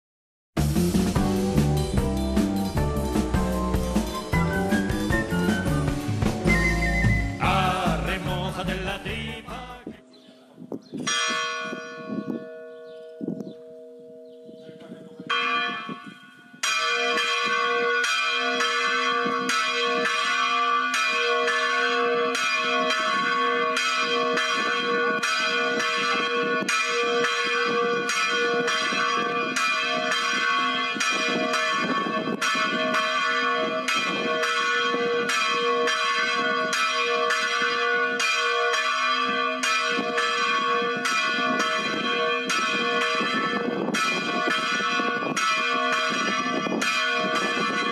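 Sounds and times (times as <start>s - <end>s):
church bell ringing: 11.1s - 47.9s.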